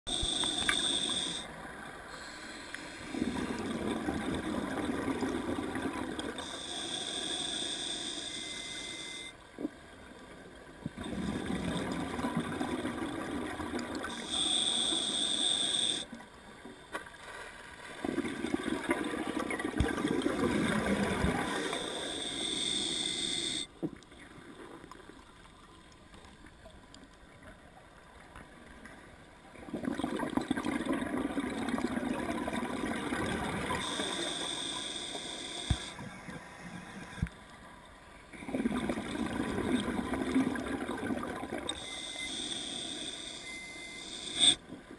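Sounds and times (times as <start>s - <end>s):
regulator hiss: 0.1s - 1.5s, 6.4s - 9.3s, 14.1s - 16.1s, 21.5s - 23.7s, 33.8s - 36.0s, 41.8s - 44.6s
exhaled bubbles rumbling underwater: 3.1s - 6.4s, 10.8s - 14.2s, 18.0s - 21.9s, 29.6s - 33.9s, 38.4s - 41.8s.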